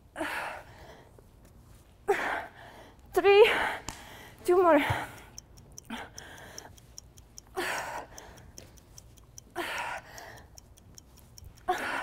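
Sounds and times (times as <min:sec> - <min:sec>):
fast faint ticking: 0:03.9 - 0:12.0.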